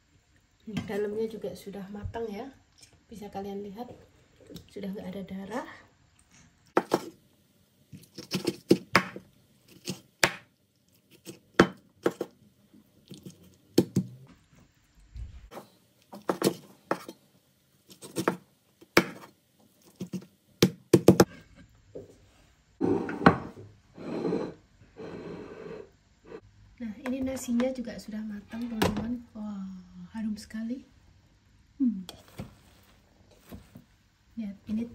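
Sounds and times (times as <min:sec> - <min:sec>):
knife chopping on wooden board: 0:06.8 - 0:07.1, 0:08.2 - 0:09.2, 0:09.8 - 0:10.5, 0:11.2 - 0:12.3, 0:16.2 - 0:17.1, 0:19.0 - 0:19.3, 0:20.0 - 0:21.3.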